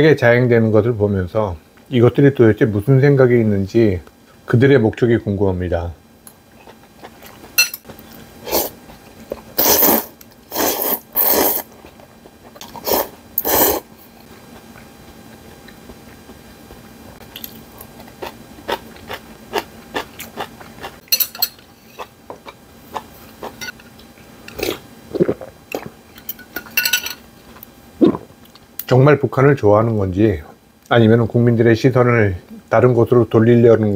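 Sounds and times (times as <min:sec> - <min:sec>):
chewing: 0:06.5 - 0:08.0, 0:14.6 - 0:21.0
person slurping noodles: 0:08.4 - 0:08.8, 0:09.6 - 0:11.8, 0:12.6 - 0:13.9, 0:24.6 - 0:25.9.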